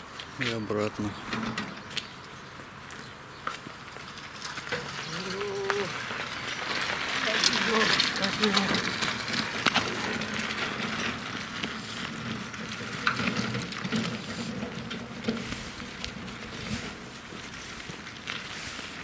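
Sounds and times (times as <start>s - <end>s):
wheelbarrow rolling on rough asphalt: 0.0s - 19.0s
footsteps walking: 1.8s - 4.1s, 15.2s - 19.0s.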